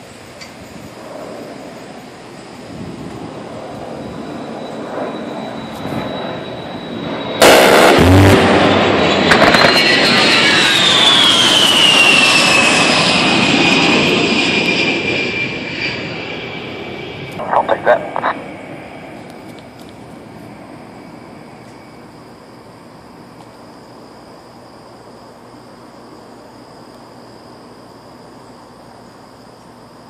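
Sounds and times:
jet engines passing: 0.0s - 30.0s
rotary cannon firing: 7.4s - 10.0s.

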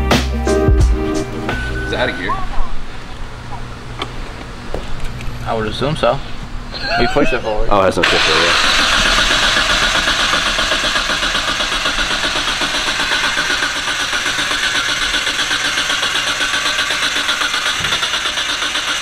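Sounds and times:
car engine idling: 8.0s - 19.0s.

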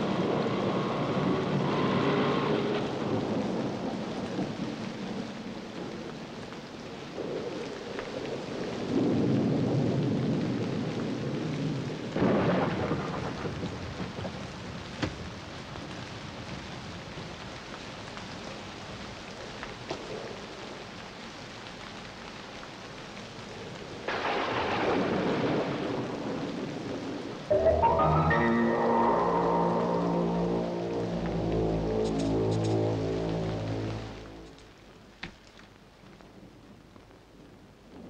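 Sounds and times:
steady rain: 0.0s - 38.0s
music: 27.5s - 34.7s.

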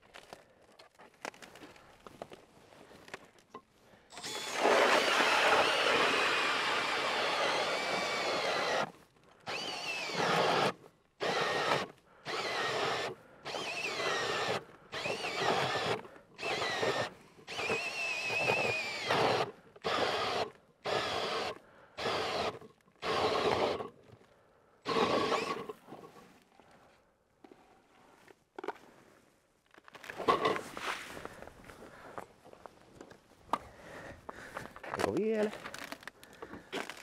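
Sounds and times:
drill motor whine: 4.1s - 8.9s, 9.5s - 23.8s, 24.9s - 25.7s.

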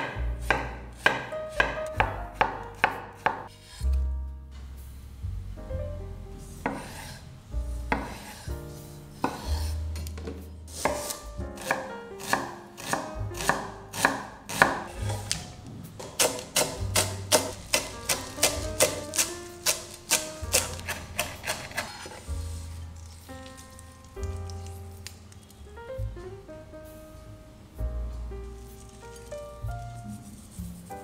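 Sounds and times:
knife chopping on wooden board: 0.0s - 3.6s, 6.6s - 7.0s, 7.9s - 8.4s, 9.2s - 22.3s
soft background music: 0.0s - 31.0s.

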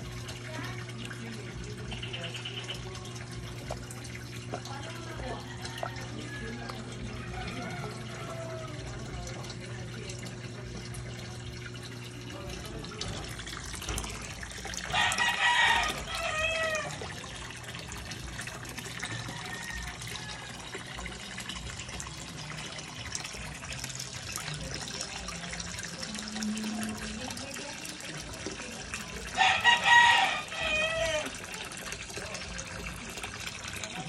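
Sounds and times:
water pouring into pond: 0.0s - 34.0s
rooster crowing: 5.4s - 8.8s, 14.9s - 17.0s, 19.1s - 20.8s, 29.4s - 31.3s.

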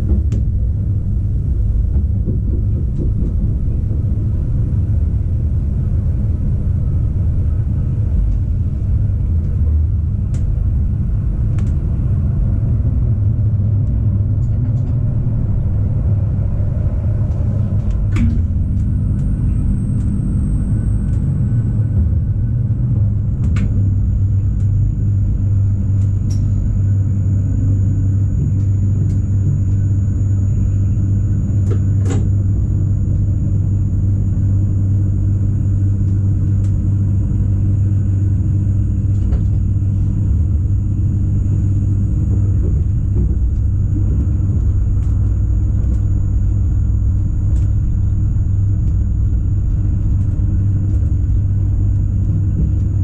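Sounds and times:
electric train rumble and hum: 0.0s - 53.0s
faint high whine: 16.2s - 53.0s.

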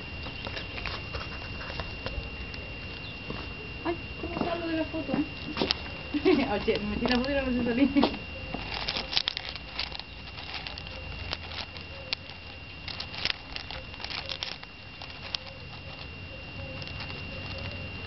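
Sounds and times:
animal scrabbling in gravel: 0.3s - 2.2s, 8.4s - 18.0s.

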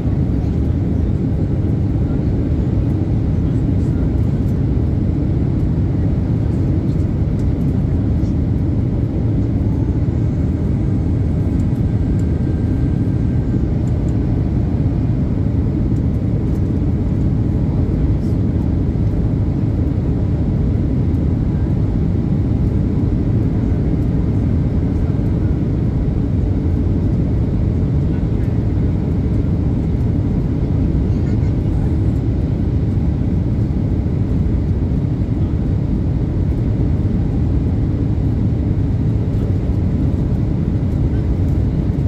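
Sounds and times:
airliner cabin drone: 0.0s - 42.0s.

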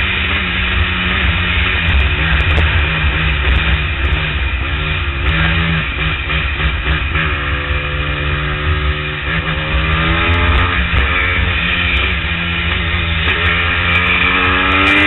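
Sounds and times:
wind rush on microphone: 0.0s - 6.0s
motorcycle engine running: 0.0s - 15.0s.

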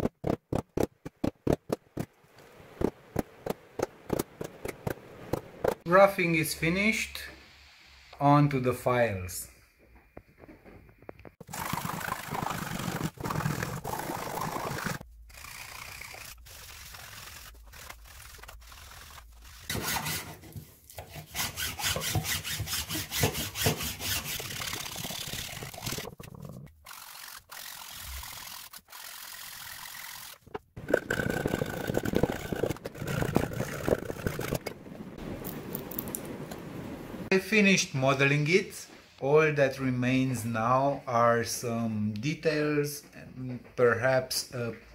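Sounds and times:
blade paring wood: 11.5s - 26.1s
file rasping on wood: 15.3s - 26.1s.

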